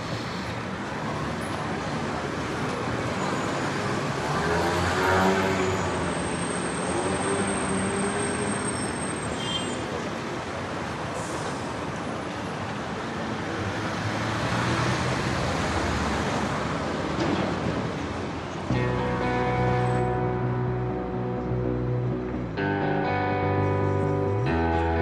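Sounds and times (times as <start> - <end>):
traffic hum: 0.0 - 25.0
vehicle passing: 18.7 - 25.0.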